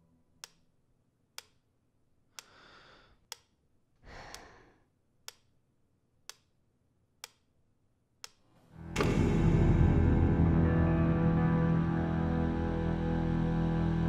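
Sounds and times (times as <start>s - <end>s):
man breathing out: 2.4s - 3.2s, 4.0s - 4.9s.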